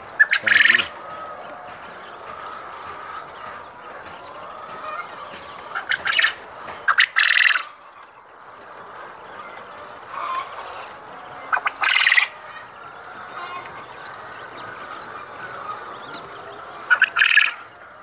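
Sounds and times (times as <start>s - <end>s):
quail chattering: 0.1s - 1.2s, 2.3s - 7.8s, 9.5s - 17.8s
quail crowing calls: 0.2s - 1.0s, 5.7s - 7.7s, 10.1s - 13.9s, 14.5s - 17.8s.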